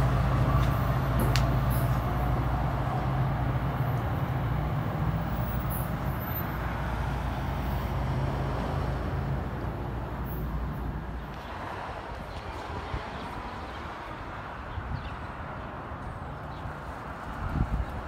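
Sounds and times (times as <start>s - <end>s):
diesel train engine rumble: 0.0s - 11.4s.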